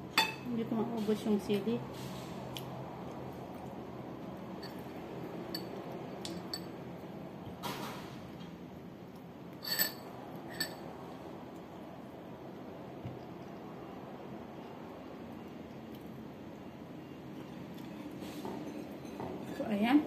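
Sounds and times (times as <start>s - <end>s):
china clinking: 9.6s - 10.8s.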